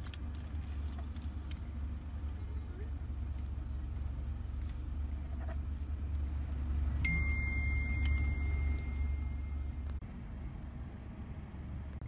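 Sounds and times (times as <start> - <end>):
car engine idling: 0.0 - 12.0
thin high steady tone: 7.0 - 9.9.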